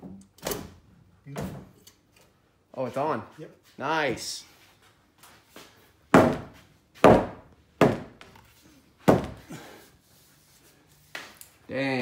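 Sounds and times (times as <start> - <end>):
sledgehammer striking wooden beam: 6.1 - 8.2.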